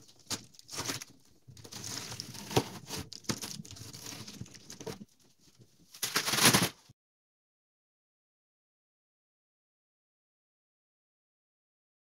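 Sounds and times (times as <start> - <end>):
foil tape crinkling and tearing: 0.0 - 5.1, 5.9 - 6.9.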